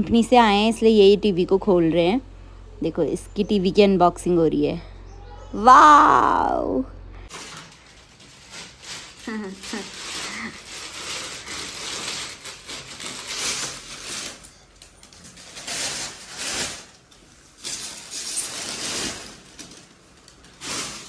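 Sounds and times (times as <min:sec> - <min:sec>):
plastic wrapping rustling: 0:07.3 - 0:21.0.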